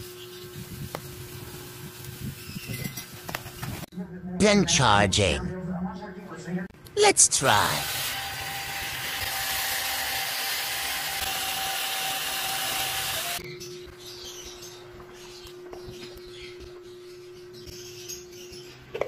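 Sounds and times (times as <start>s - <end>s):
handheld egg whisk motor whine: 7.8s - 13.4s.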